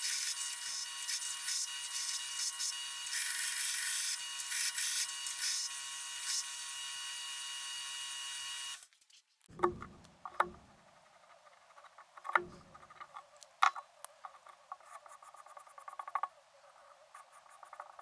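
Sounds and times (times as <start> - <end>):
belt grinder grinding steel: 0.0 - 8.8.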